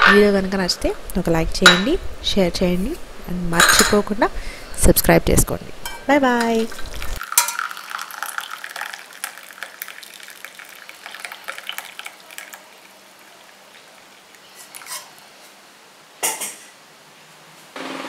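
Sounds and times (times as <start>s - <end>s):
drink pouring and splashing: 6.6s - 15.2s.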